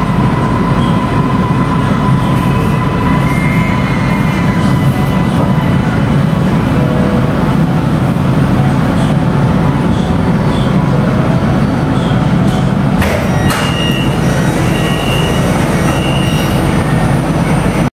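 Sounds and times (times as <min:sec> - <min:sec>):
train interior rumble: 0:00.0 - 0:17.9
high beeps: 0:13.4 - 0:16.6.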